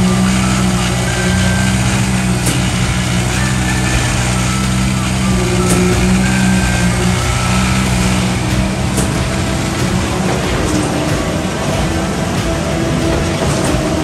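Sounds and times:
construction site noise: 0:00.0 - 0:14.0
truck engine running: 0:00.0 - 0:14.0.

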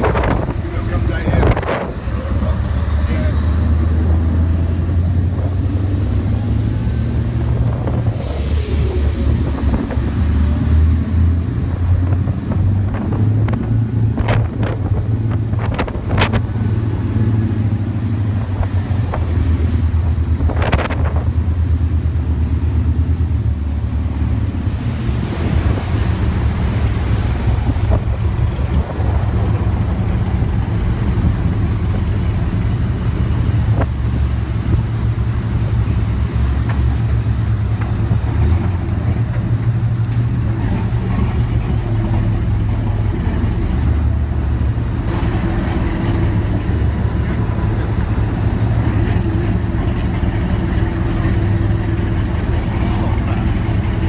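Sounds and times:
wind on microphone: 0:00.0 - 0:02.6, 0:03.8 - 0:21.8, 0:24.1 - 0:36.3
boat engine rumbling: 0:00.0 - 0:54.0
water rushing past hull: 0:00.0 - 0:54.0.

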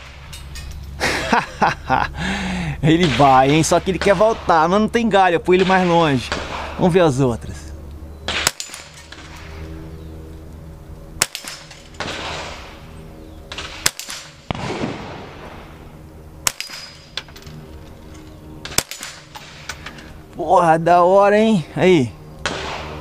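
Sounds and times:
rifle shots: 0:05.5 - 0:07.0, 0:08.3 - 0:09.4, 0:11.2 - 0:12.9, 0:13.5 - 0:15.8, 0:16.4 - 0:17.1, 0:18.6 - 0:19.7, 0:22.4 - 0:23.0
bullet hitting steel target: 0:08.3 - 0:09.5, 0:11.2 - 0:12.8, 0:13.5 - 0:15.4, 0:16.4 - 0:17.4, 0:18.6 - 0:19.8, 0:22.4 - 0:23.0.

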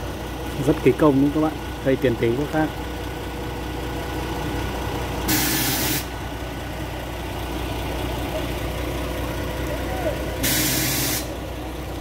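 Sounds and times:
diesel engine idling: 0:00.0 - 0:12.0
hiss of released air: 0:05.3 - 0:06.1, 0:10.4 - 0:11.3.

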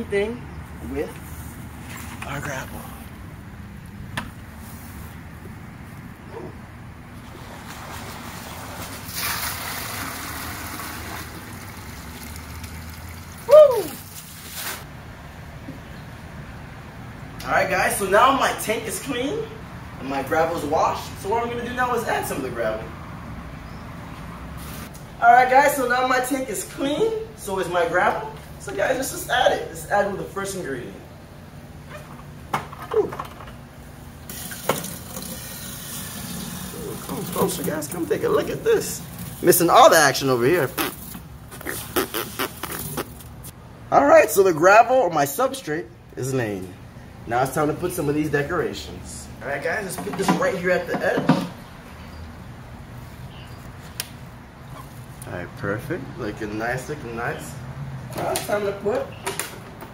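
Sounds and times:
water gushing into a bucket: 0:07.4 - 0:14.7, 0:34.3 - 0:37.9.

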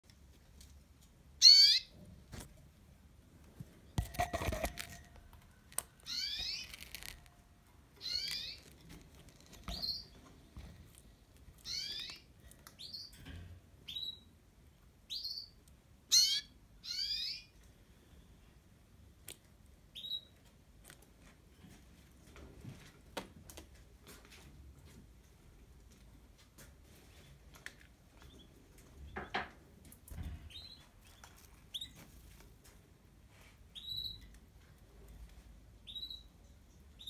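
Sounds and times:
canaries calling: 0:01.4 - 0:02.0, 0:06.0 - 0:07.2, 0:07.9 - 0:08.8, 0:11.6 - 0:13.1, 0:15.1 - 0:17.6
rustling and knocking: 0:03.6 - 0:05.5.

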